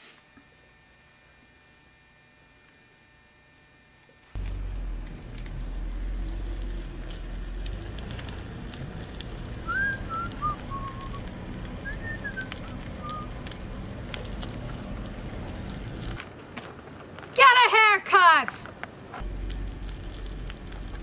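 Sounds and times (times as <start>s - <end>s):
steady low rumble: 4.4s - 16.2s, 19.2s - 21.0s
whistled chirping notes: 9.6s - 13.4s.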